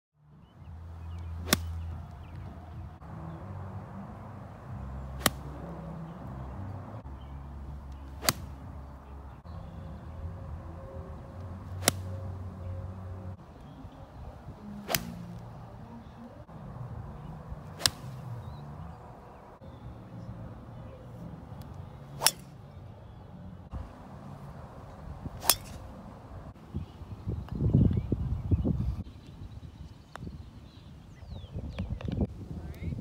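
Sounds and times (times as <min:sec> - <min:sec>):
golf club striking ball: 0:01.4 - 0:02.0, 0:05.2 - 0:05.5, 0:08.1 - 0:08.6, 0:11.8 - 0:12.2, 0:14.8 - 0:15.4, 0:17.7 - 0:18.3, 0:22.2 - 0:22.6, 0:25.4 - 0:26.0.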